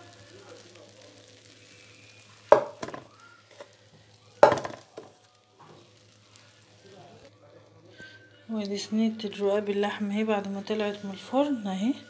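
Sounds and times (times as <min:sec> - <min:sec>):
faint sizzling pastry: 0:00.0 - 0:12.0
knocks on metal baking tray: 0:02.6 - 0:03.0, 0:04.4 - 0:04.8.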